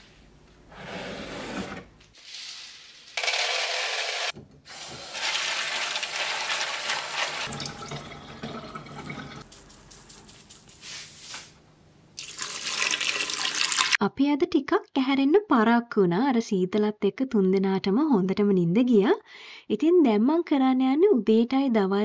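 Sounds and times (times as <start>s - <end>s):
tap water running into sink: 4.8s - 9.4s, 12.2s - 14.0s.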